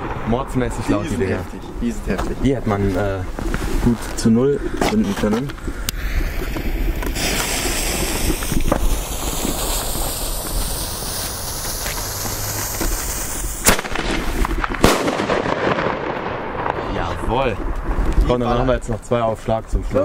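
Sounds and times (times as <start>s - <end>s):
firecracker bangs: 0.0s - 2.7s, 6.4s - 18.6s
fuse hissing: 5.7s - 14.4s.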